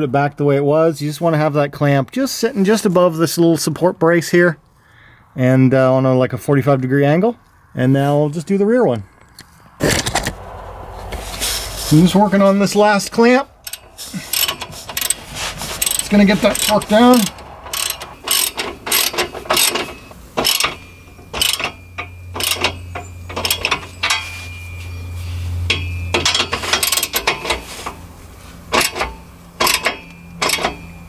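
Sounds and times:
socket ratchet clicking: 13.6s - 24.2s.

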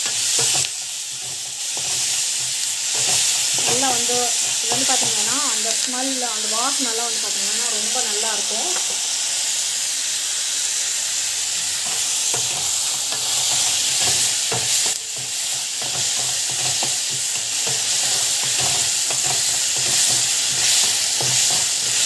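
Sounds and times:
wooden spatula scraping a pan: 0.0s - 5.8s, 11.8s - 22.0s
vegetables sizzling in a pan: 0.0s - 22.0s.

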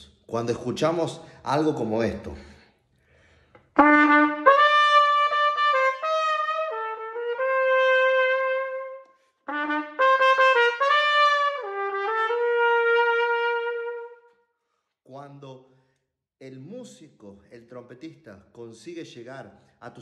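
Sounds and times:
solo trumpet melody: 3.8s - 14.4s.

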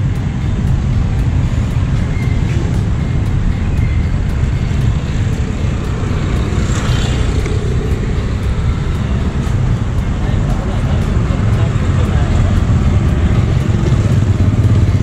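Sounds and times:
city traffic rumble: 0.0s - 15.0s.

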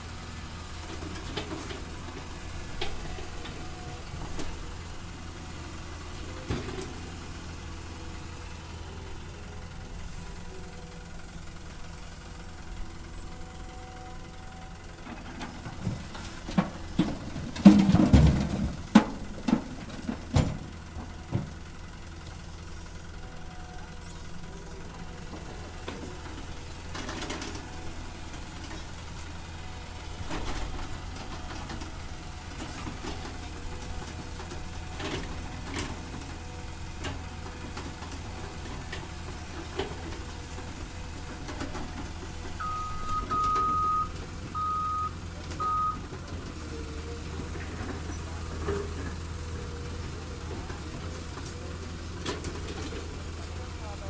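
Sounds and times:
excavator diesel engine running: 0.0s - 54.0s
rocks clanking and knocking: 15.0s - 21.6s, 30.0s - 40.6s.

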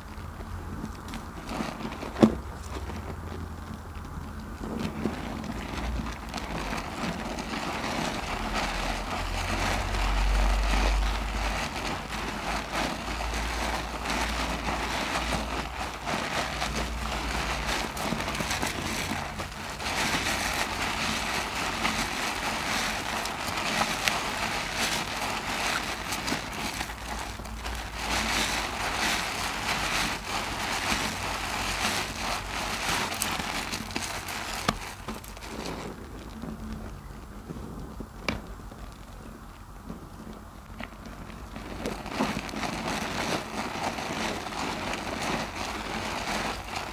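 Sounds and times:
wet squelching of soapy loofah: 0.0s - 46.9s.

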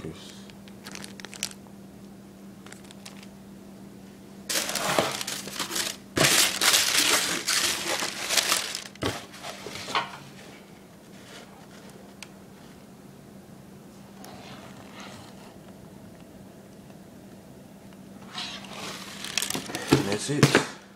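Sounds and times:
packing paper crinkling: 0.6s - 1.6s, 2.6s - 3.3s, 4.5s - 9.7s, 18.8s - 20.2s.

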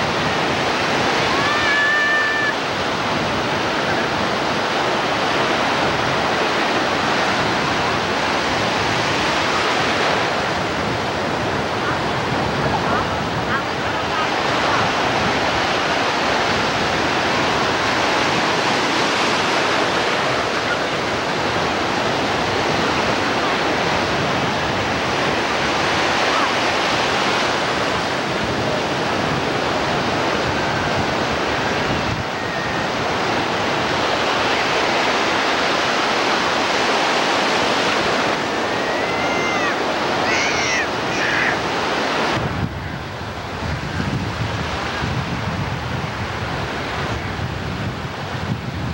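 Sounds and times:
ocean waves breaking: 0.0s - 48.9s
short high-pitched cries: 1.3s - 2.6s, 38.7s - 41.6s.

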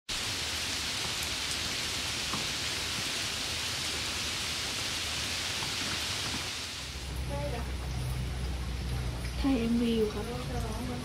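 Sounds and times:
water hissing: 0.1s - 10.8s
faint water drips: 6.9s - 11.0s.

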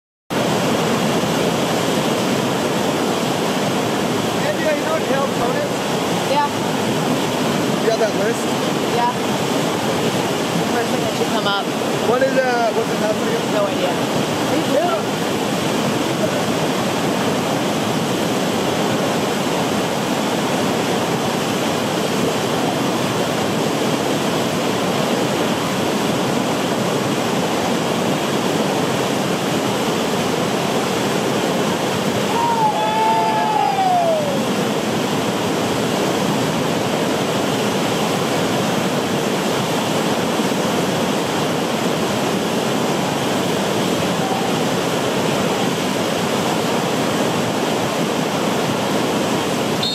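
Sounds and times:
river rapids rushing: 0.3s - 49.9s
person whooping: 32.3s - 34.4s.

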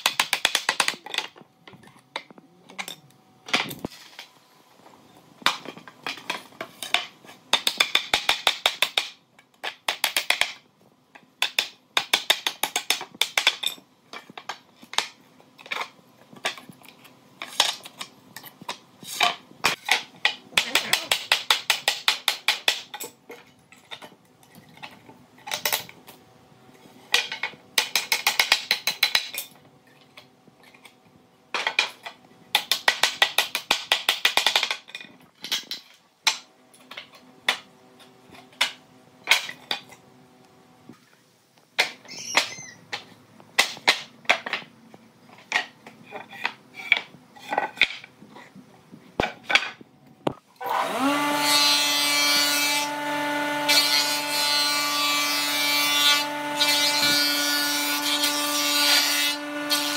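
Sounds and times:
power tool whine: 50.6s - 51.9s.

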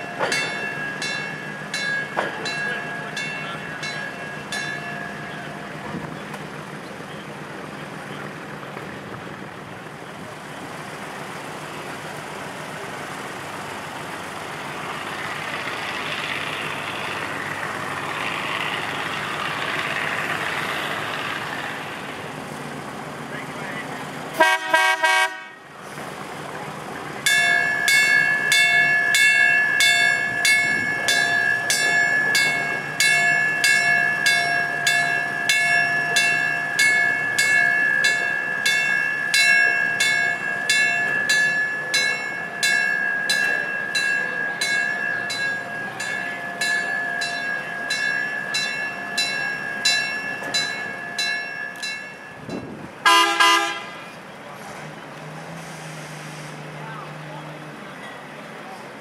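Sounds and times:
railroad bell ringing: 0.0s - 7.9s, 27.1s - 54.1s, 57.8s - 58.5s.

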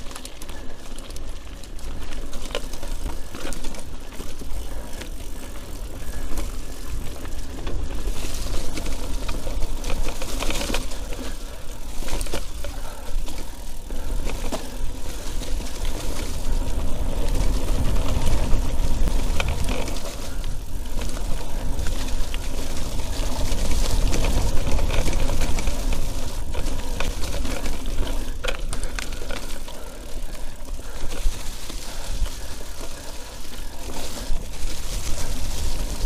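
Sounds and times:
bike rattling and knocking: 0.0s - 36.0s
tyres rolling through mud: 0.0s - 36.0s
wind rumble on microphone: 13.9s - 36.0s.

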